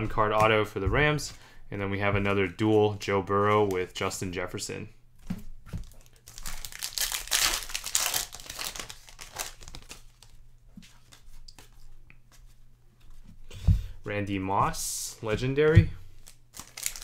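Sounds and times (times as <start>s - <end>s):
wrapper crinkling and tearing: 5.8s - 10.4s, 16.2s - 17.0s
cards clicking and rustling: 5.8s - 11.8s, 16.2s - 17.0s.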